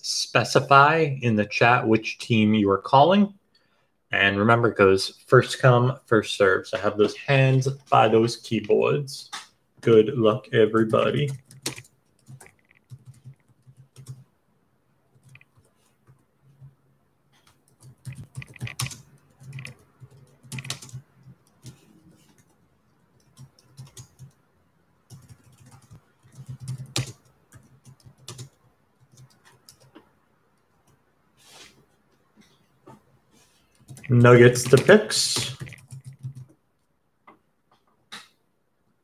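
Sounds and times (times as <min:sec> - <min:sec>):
typing on keyboard: 0:10.8 - 0:14.3, 0:15.1 - 0:16.2, 0:17.4 - 0:22.6, 0:23.2 - 0:24.4, 0:25.1 - 0:30.1, 0:33.7 - 0:36.6.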